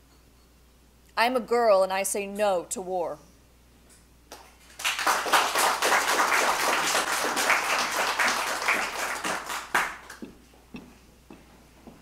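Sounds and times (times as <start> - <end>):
audience applauding: 4.3 - 10.2.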